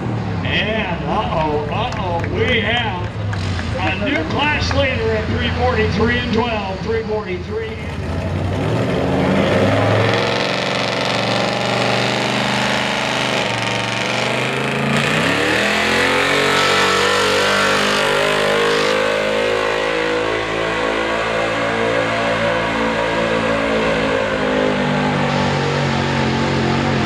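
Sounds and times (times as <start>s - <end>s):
pickup engine running hard: 0.0s - 27.0s.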